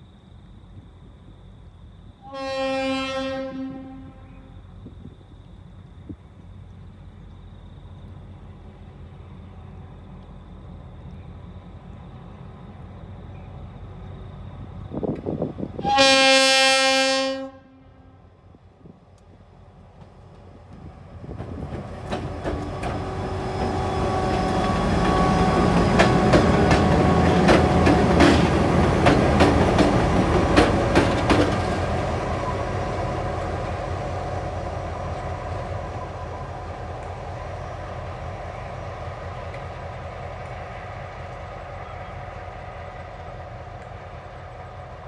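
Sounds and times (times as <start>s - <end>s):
diesel locomotive engine: 0.0s - 45.0s
wheels clicking over rail joints: 19.1s - 33.9s.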